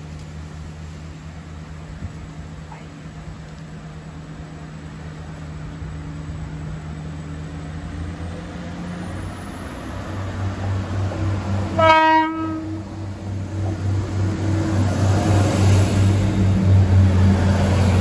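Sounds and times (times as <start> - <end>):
diesel train engines running: 0.0 - 18.0
train horn blast: 11.7 - 12.9.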